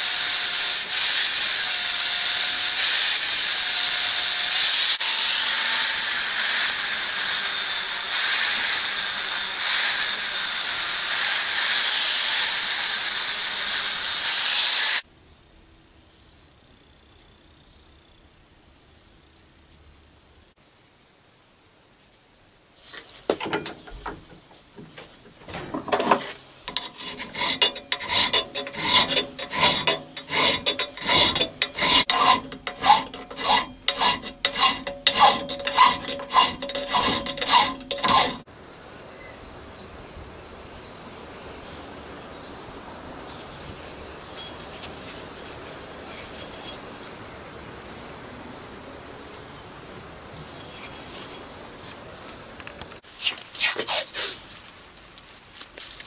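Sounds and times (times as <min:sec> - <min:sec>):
file rasping on steel: 0:00.0 - 0:15.0, 0:25.8 - 0:38.5.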